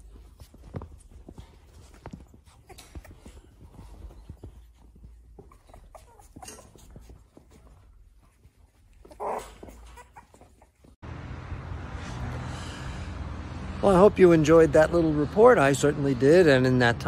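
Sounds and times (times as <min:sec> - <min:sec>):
paws clicking and scuffling: 0:00.0 - 0:11.0
puppies whimpering and yipping: 0:00.0 - 0:11.0.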